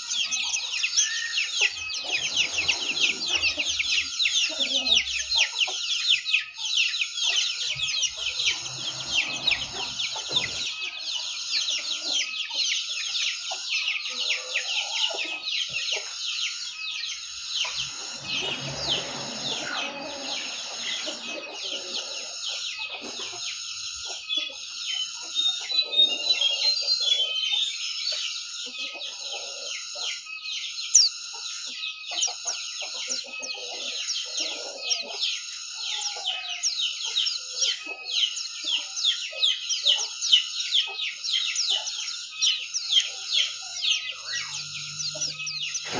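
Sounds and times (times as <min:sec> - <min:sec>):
bird twittering song: 0:00.0 - 0:45.9.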